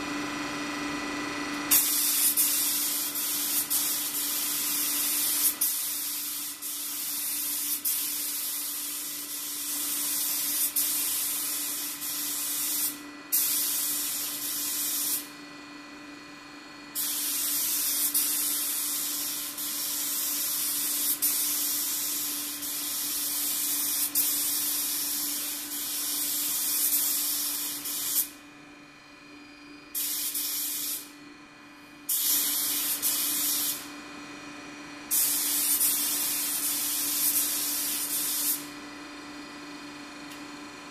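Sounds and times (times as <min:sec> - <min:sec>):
spray gun hissing: 0:01.7 - 0:15.3, 0:17.0 - 0:28.3, 0:30.0 - 0:31.1, 0:32.1 - 0:33.9, 0:35.1 - 0:38.7.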